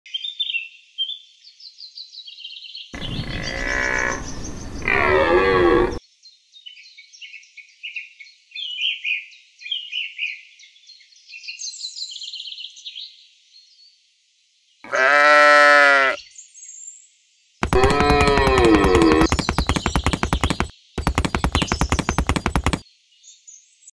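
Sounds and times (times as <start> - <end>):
birds chirping: 3.0 - 6.0, 17.6 - 22.8
drawn-out farm animal call: 3.0 - 6.0, 14.9 - 16.2, 17.6 - 20.7
loud bleat: 3.0 - 6.0, 14.9 - 16.2, 17.7 - 19.3.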